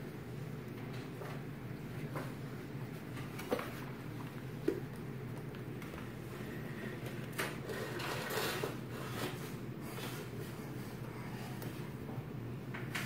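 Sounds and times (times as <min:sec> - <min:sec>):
chair scraping on wooden floor: 0:07.4 - 0:10.4.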